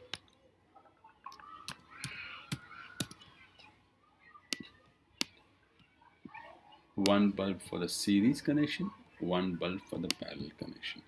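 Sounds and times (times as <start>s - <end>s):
computer keyboard and mouse clicks: 1.2s - 3.3s.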